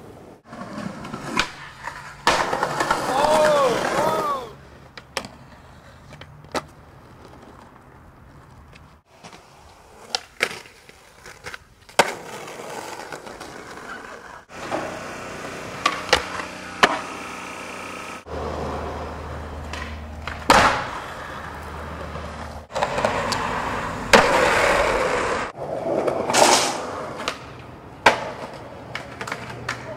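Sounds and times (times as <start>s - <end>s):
skateboard wheels rolling: 0.0s - 29.9s
skateboard tail clacks: 0.7s - 17.8s, 18.4s - 29.9s.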